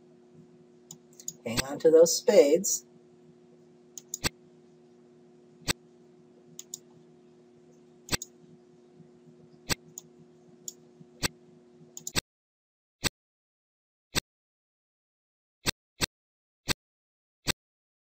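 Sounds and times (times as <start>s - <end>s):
steady low hum: 0.0s - 12.2s
computer mouse clicking: 4.0s - 4.3s, 6.6s - 6.9s, 8.1s - 8.3s, 12.0s - 12.2s.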